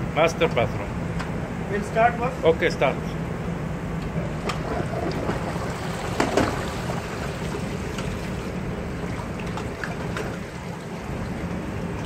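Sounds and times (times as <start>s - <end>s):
toilet flushing: 4.5s - 12.0s.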